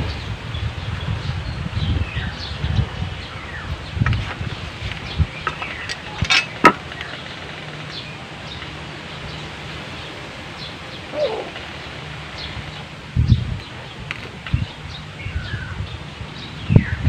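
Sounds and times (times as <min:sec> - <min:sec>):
small birds chirping: 0:00.0 - 0:17.0
chicken call: 0:11.1 - 0:11.6.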